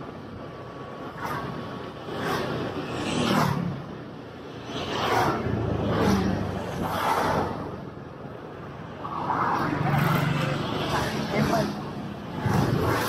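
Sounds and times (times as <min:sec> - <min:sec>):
traffic passing: 0:00.0 - 0:13.0.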